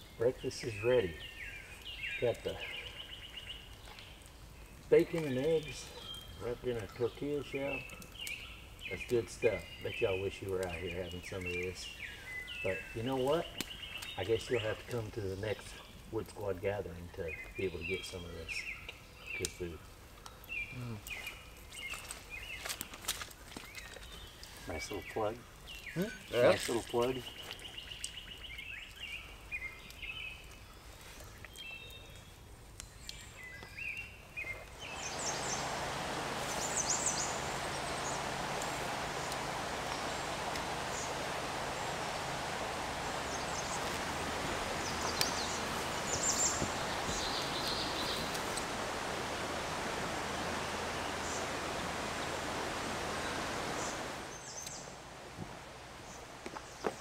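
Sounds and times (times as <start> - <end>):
birds chirping: 0.0 - 57.0
creek water rushing: 34.6 - 56.5.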